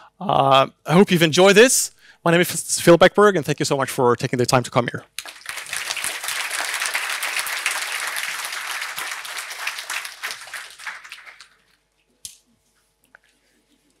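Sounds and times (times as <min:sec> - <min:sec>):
audience applauding: 0:05.2 - 0:11.7.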